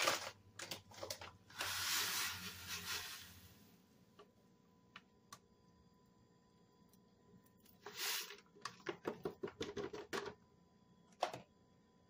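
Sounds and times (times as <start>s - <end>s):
foil packet crinkling: 0.0s - 3.2s.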